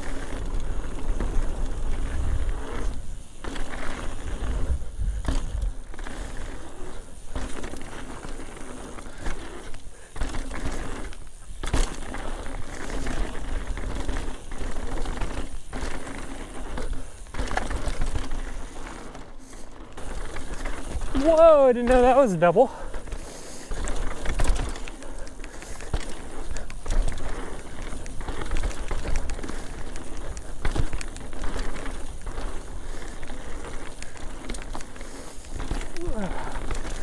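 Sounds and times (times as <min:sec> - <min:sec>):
low wind rumble: 0:00.0 - 0:07.8
bike rattling and knocking: 0:00.0 - 0:37.0
bike tyres rolling over dirt: 0:00.0 - 0:37.0.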